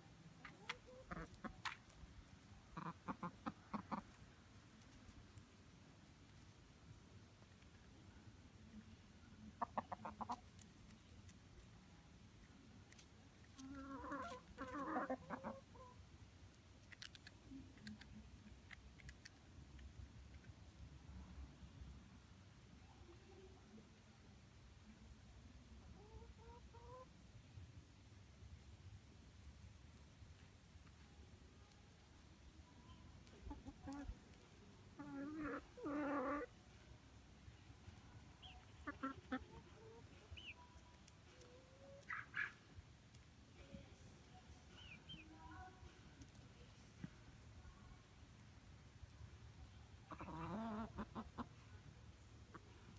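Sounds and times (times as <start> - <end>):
chicken clucking: 0.4 - 1.8, 2.7 - 4.2, 9.4 - 11.1, 13.4 - 16.0, 26.0 - 27.1, 32.8 - 34.2, 34.9 - 36.6, 38.4 - 42.7, 44.8 - 45.3, 50.1 - 51.6.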